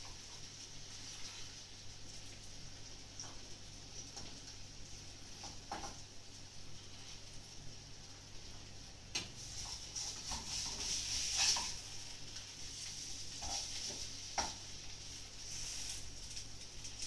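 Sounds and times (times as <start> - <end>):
pancakes sizzling in frying pan: 0.0 - 17.0
utensil scraping and knocking pan: 9.6 - 11.8.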